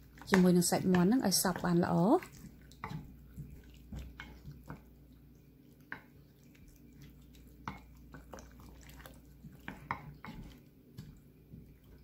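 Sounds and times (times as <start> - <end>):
spatula squelching in marinade: 0.0 - 12.0
spatula tapping ceramic bowl: 0.2 - 1.8.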